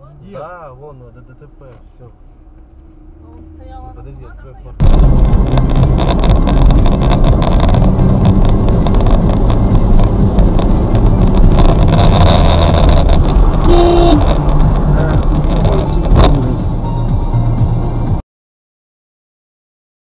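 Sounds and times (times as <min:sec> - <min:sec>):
engine and road rumble: 0:00.0 - 0:18.2
short beep: 0:13.6 - 0:14.2.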